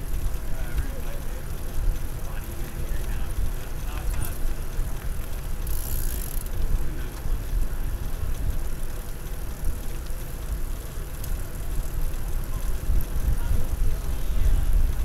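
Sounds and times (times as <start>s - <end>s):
tyre noise on asphalt: 0.0s - 15.0s
wind buffeting microphone: 12.6s - 15.0s.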